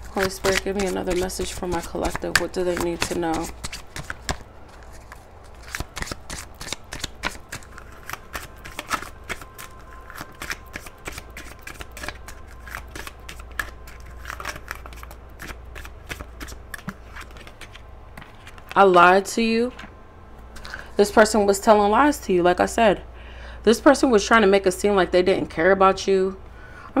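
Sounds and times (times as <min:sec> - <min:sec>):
cards being shuffled: 0:00.0 - 0:18.8.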